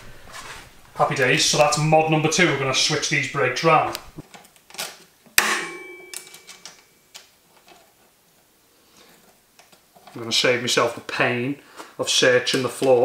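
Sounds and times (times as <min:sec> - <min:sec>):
sharp metal clink: 0:05.4 - 0:07.0.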